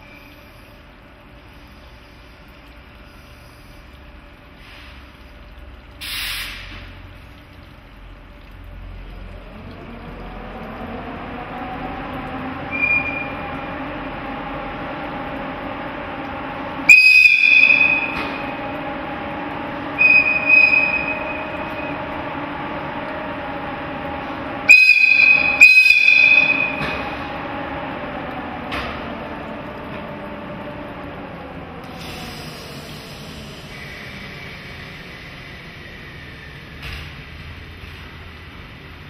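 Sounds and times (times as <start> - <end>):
machinery hum: 0.0 - 39.0
locomotive air whistle blasts: 12.6 - 13.9, 16.8 - 18.9, 19.7 - 22.2, 24.5 - 27.6.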